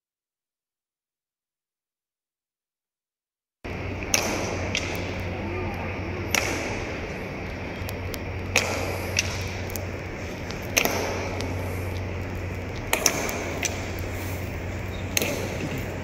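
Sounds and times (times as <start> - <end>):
low steady hum: 3.7 - 16.0.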